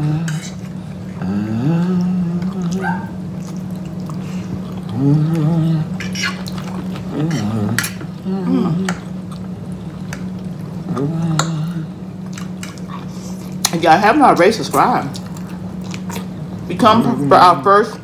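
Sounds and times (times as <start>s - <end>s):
hummed mm sounds: 0.0s - 13.7s
steady low hum: 0.0s - 18.0s
wet chewing and mouth sounds: 0.3s - 8.2s, 8.8s - 13.8s, 15.0s - 16.7s.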